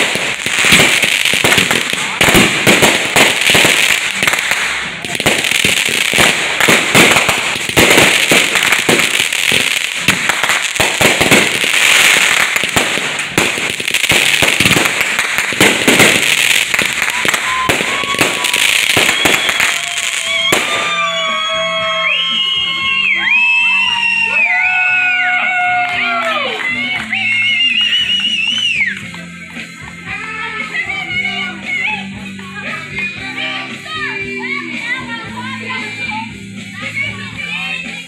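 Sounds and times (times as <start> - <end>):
fireworks bangs and crackling: 0.0 - 21.5
music: 0.0 - 38.0.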